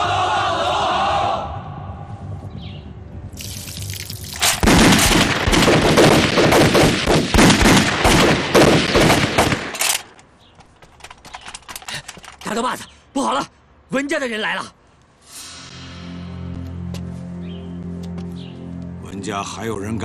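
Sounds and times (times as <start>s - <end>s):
scattered rifle cracks: 9.0s - 10.3s.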